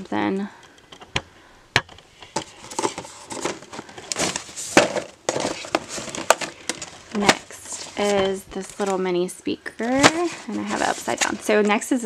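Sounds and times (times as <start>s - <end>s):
plastic crinkling: 2.2s - 9.2s, 9.8s - 12.0s
cardboard boxes rustling and knocking: 2.3s - 9.1s, 9.8s - 12.0s.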